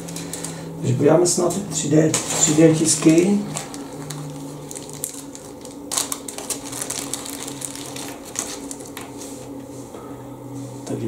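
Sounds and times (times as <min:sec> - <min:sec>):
plastic bag crinkling: 0:00.0 - 0:00.7, 0:02.1 - 0:09.5.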